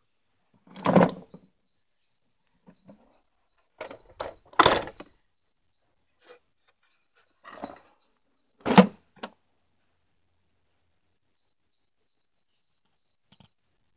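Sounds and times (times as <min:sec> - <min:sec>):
plastic clunks and knocks: 0:03.8 - 0:05.1, 0:08.6 - 0:09.4.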